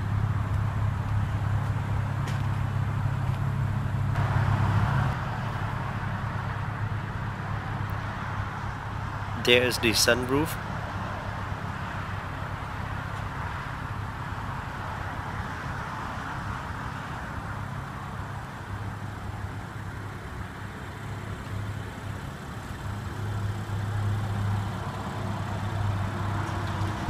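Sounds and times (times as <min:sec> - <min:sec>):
outdoor background hiss: 0:00.0 - 0:27.0
car engine idling: 0:16.6 - 0:27.0.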